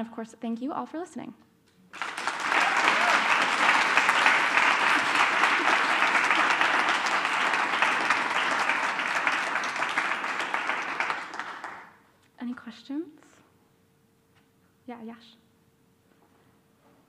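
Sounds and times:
audience applauding: 1.9s - 12.0s.

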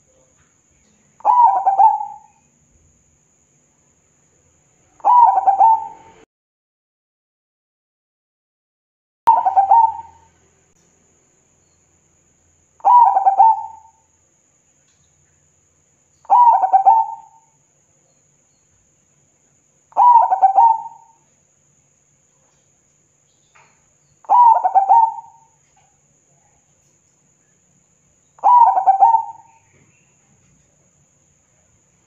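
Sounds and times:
dove cooing: 1.2s - 2.3s, 5.0s - 6.2s, 9.3s - 10.3s, 12.8s - 14.0s, 16.3s - 17.5s, 19.9s - 21.2s, 24.2s - 25.6s, 28.4s - 29.8s.

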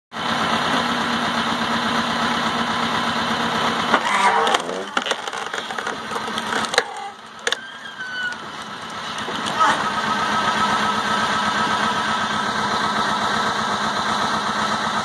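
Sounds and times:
tractor engine and pump hum: 0.1s - 15.0s
log splitter running: 0.2s - 15.0s
wood cracking as it splits: 3.9s - 9.8s.

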